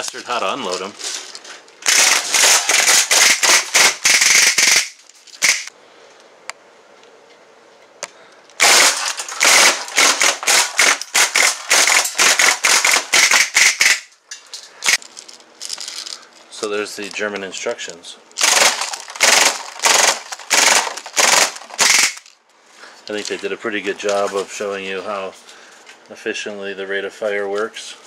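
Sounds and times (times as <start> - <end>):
bb gun rapid pops: 1.9 - 5.7, 8.6 - 14.0, 18.4 - 22.2.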